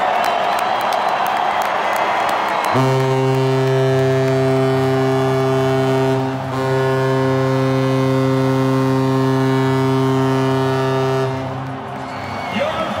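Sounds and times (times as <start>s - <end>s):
goal horn blast: 2.6s - 12.3s.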